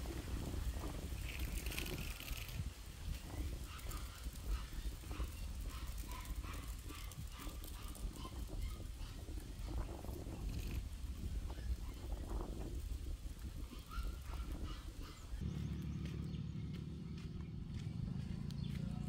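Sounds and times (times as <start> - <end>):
low rumble: 15.3 - 19.0.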